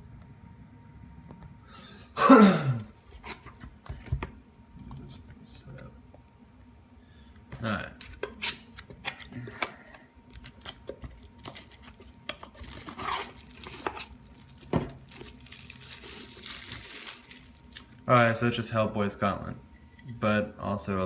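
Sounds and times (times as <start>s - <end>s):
plastic wrap crinkling: 10.4s - 18.0s
cardboard box being opened: 12.6s - 15.4s.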